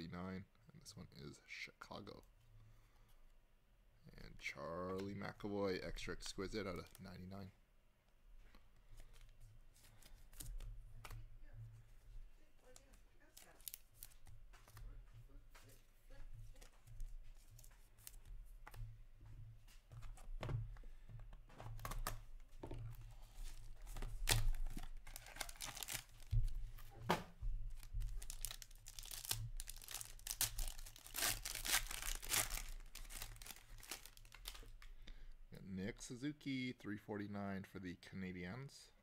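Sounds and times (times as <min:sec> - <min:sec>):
plastic and foil wrapping crinkling: 0:12.6 - 0:14.9, 0:22.9 - 0:27.0, 0:27.6 - 0:34.9.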